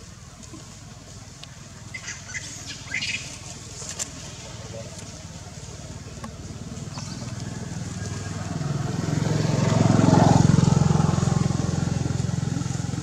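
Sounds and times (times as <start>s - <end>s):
small petrol engine running: 5.2s - 13.0s.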